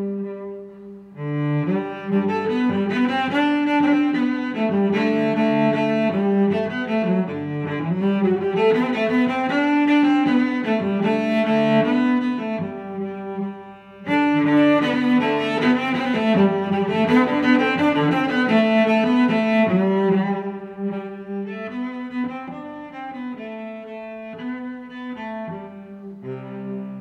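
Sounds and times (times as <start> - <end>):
instrumental music with held notes: 0.0 - 27.0.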